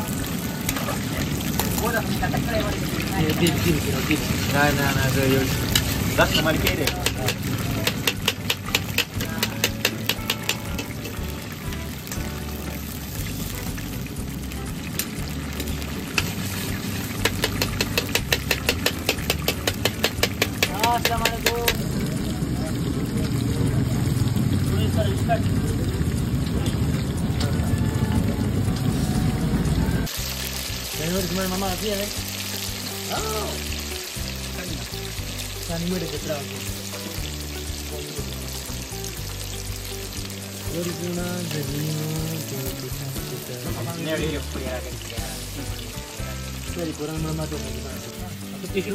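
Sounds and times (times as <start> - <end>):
oil crackling and spitting: 0.0 - 27.6
chicken frying in hot oil: 0.0 - 48.9.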